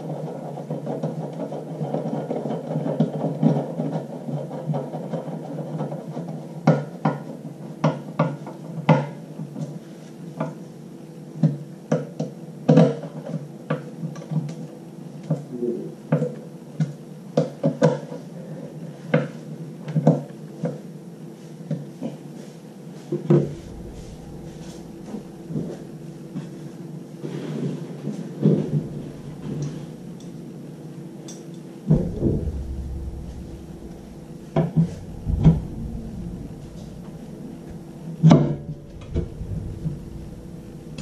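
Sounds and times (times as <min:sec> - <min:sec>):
steady low tone: 0:23.3 - 0:27.2, 0:28.4 - 0:31.2, 0:31.8 - 0:41.0.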